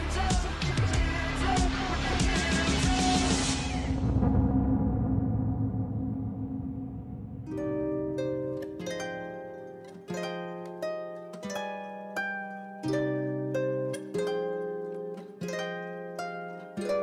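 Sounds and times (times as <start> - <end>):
sustained bass notes: 0.0 - 9.4
plucked string music: 7.4 - 17.0.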